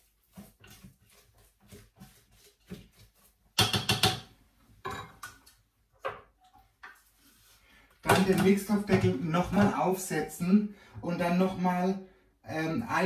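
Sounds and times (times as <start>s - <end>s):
spatula scraping a metal bowl: 0.3s - 4.1s.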